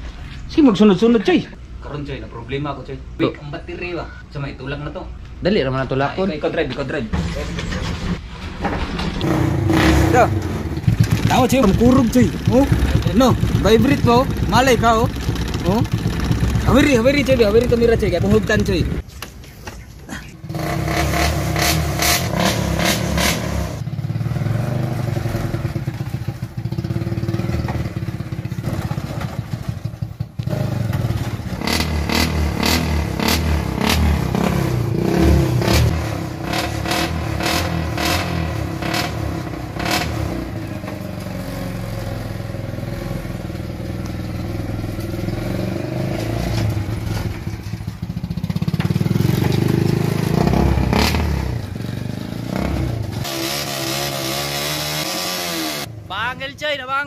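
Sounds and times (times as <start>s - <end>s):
small petrol engine running: 9.9s - 19.0s.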